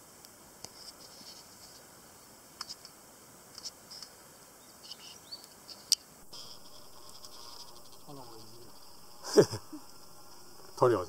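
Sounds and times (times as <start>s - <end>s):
faint steady background noise: 0.0s - 11.0s
campfire crackling and popping: 6.0s - 11.0s.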